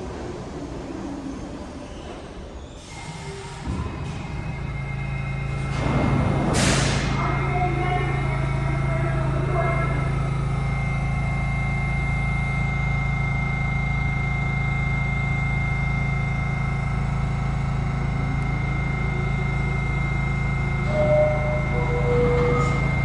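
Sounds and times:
train equipment low hum: 0:00.0 - 0:23.0
thin high whine: 0:08.0 - 0:23.0.

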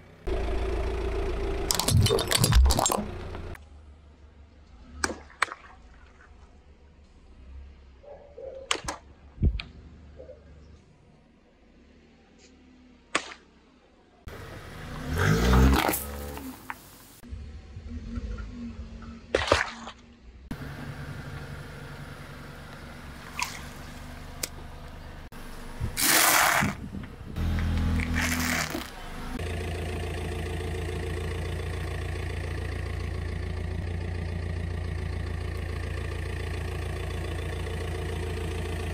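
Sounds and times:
car engine idling: 0:00.0 - 0:04.8, 0:14.3 - 0:15.2, 0:20.5 - 0:26.0, 0:26.9 - 0:38.9
sharp crack: 0:13.1 - 0:13.5, 0:26.0 - 0:26.8.

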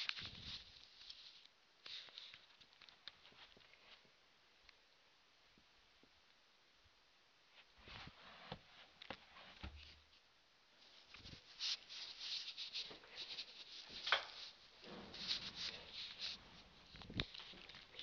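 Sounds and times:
scratching and rustling: 0:00.0 - 0:04.1, 0:10.8 - 0:18.0.

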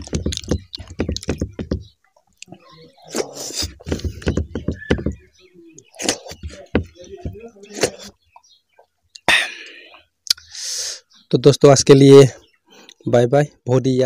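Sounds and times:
chewing and lip-smacking: 0:00.0 - 0:01.3.

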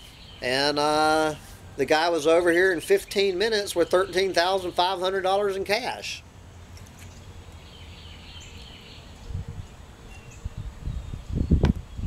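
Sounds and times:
distant birds chirping: 0:00.0 - 0:12.0
wind buffeting microphone: 0:09.2 - 0:12.0.

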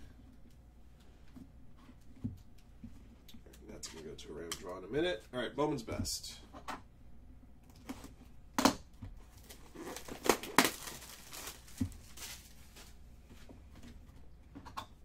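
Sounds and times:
cards rustling: 0:09.3 - 0:13.0.

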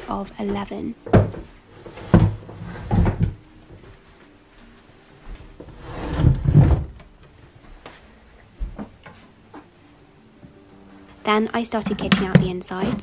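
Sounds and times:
wooden desk knocking against floor: 0:11.9 - 0:12.6.

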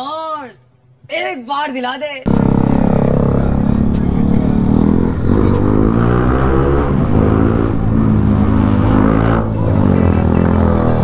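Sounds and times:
motorcycle engine accelerating: 0:02.3 - 0:11.0.

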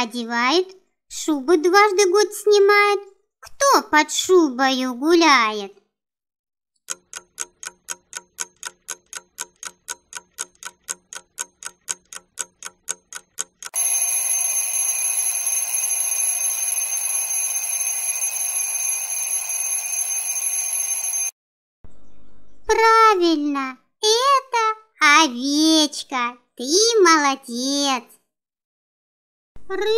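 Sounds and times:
clock ticking fast: 0:06.9 - 0:21.3
alarm bell ringing: 0:13.7 - 0:21.4.

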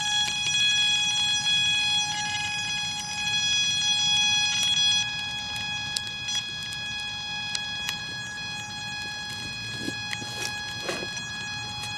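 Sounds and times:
high-pitched electronic whine: 0:00.0 - 0:11.9.

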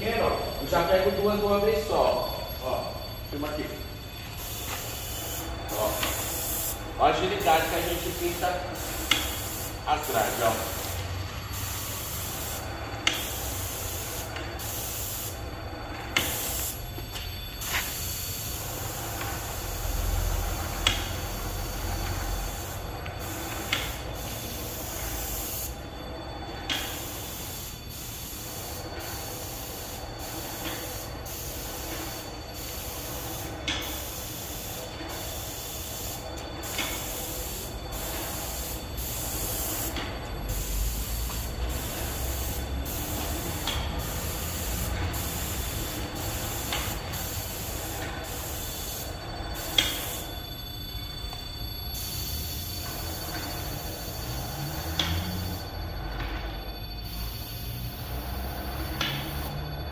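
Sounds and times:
paint sprayer hissing: 0:04.3 - 0:15.4, 0:16.1 - 0:25.8, 0:26.7 - 0:50.3, 0:57.0 - 0:59.6.

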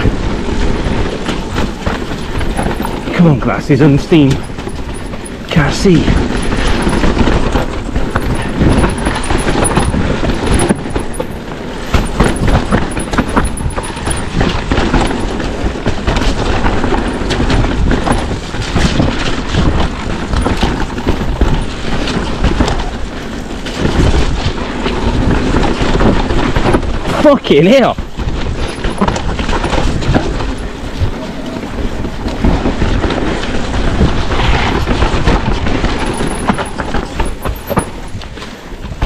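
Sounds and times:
low rumble: 0:00.0 - 0:27.1
bike clattering and rattling: 0:00.0 - 0:39.0.

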